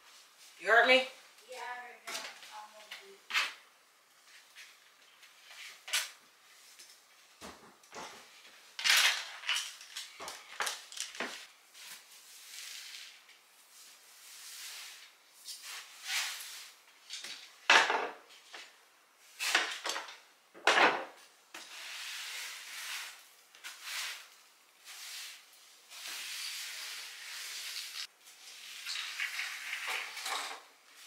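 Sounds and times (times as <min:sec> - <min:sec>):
broom sweeping hard floor: 0:11.2 - 0:17.6, 0:21.5 - 0:31.0.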